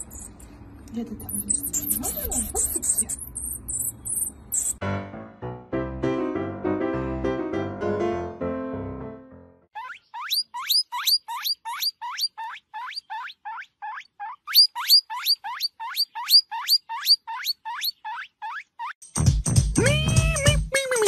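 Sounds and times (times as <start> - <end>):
small animal squeaking: 0.0 - 0.5, 1.2 - 4.8, 9.8 - 19.0
person speaking: 0.9 - 3.3, 19.8 - 21.0
music: 4.8 - 9.7, 19.0 - 21.0.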